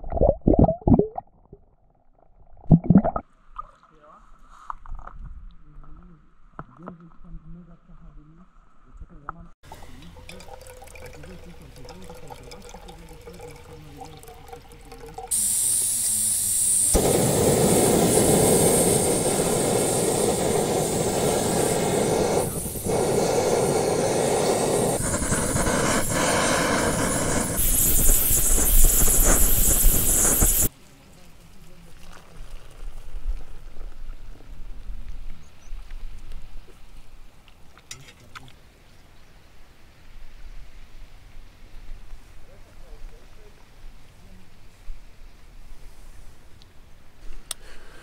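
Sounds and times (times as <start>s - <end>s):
water poured into cup: 9.7s - 15.8s, 31.9s - 33.5s
gas hissing: 15.2s - 30.7s
gas stove burner rushing: 15.3s - 30.7s.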